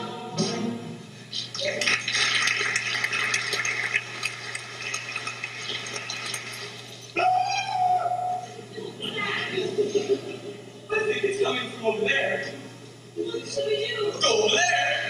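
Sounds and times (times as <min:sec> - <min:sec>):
low electrical hum: 0:00.0 - 0:15.0
audience applauding: 0:01.5 - 0:07.1.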